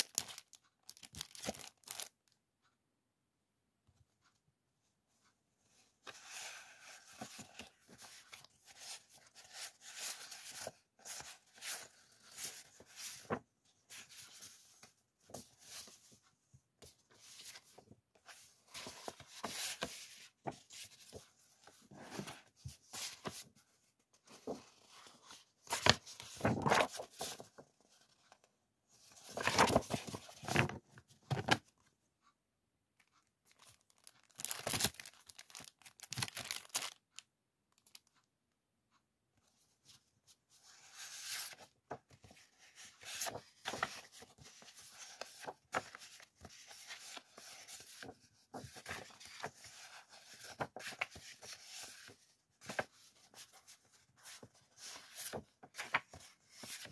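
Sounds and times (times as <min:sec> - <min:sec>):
plastic and paper crinkling: 0:00.0 - 0:02.4, 0:24.2 - 0:28.3, 0:29.0 - 0:31.6, 0:33.0 - 0:38.2, 0:41.0 - 0:56.9.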